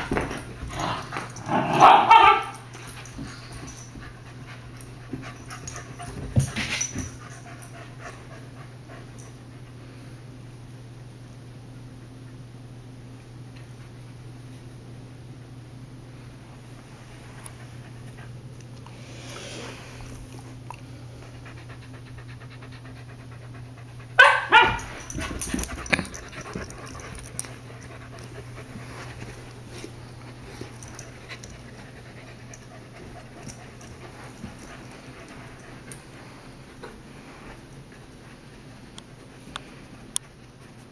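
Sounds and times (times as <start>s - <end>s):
puppies scuffling: 0.0s - 8.0s, 24.2s - 38.5s
puppies panting: 2.6s - 9.2s, 20.7s - 40.9s.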